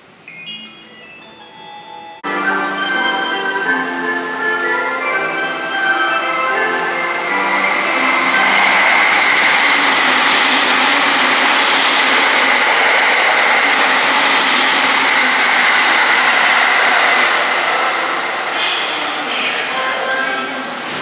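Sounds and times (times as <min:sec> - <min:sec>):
high-pitched train whine: 0:00.0 - 0:21.0
train wheels on rail: 0:05.1 - 0:21.0.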